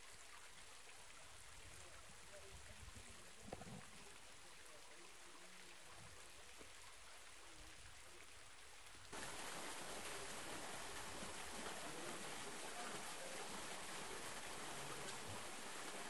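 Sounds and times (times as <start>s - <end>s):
waterfall splashing into pool: 9.1s - 16.0s.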